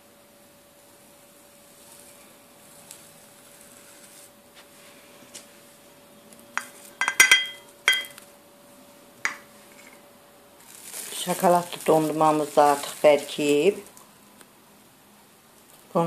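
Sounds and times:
faint steady hum: 0.0 - 16.0
glass bowls clinking: 6.6 - 8.2.

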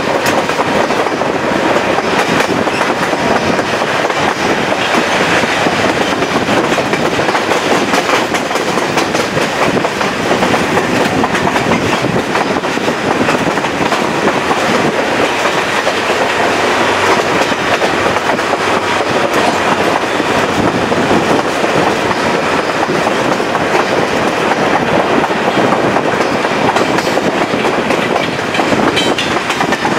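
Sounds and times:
train wheels on rails: 0.0 - 29.9.

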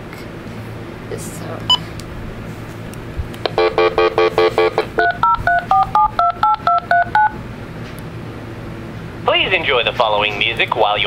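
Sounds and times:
phone keypad beeps: 3.6 - 7.4
two-note touch-tone digits: 3.6 - 7.4.

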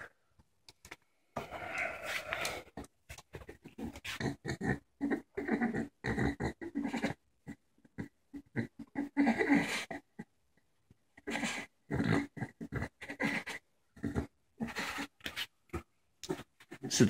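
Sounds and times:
dog's harsh throaty breathing: 11.2 - 15.2.

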